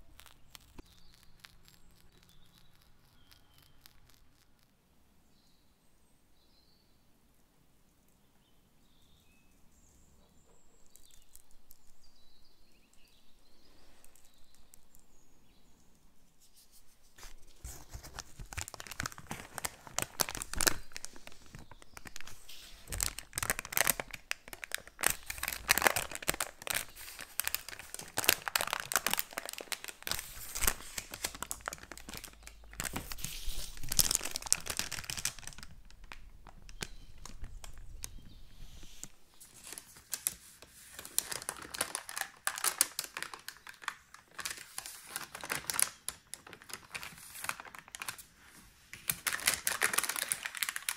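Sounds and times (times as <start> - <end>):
baking paper crinkling: 0.0 - 4.7, 16.5 - 50.9.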